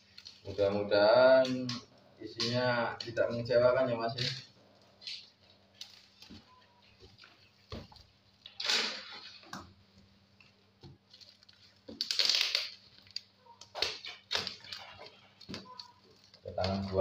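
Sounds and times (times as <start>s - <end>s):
plastic crinkling: 0.0s - 3.5s, 4.1s - 17.0s
knife cutting packing tape: 12.0s - 12.8s.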